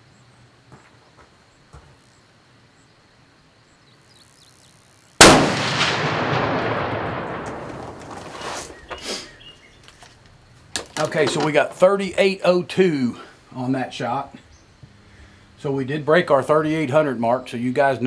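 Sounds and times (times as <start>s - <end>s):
rolling echo of gunshot: 5.2s - 8.4s
loud rifle shot: 5.2s - 8.5s.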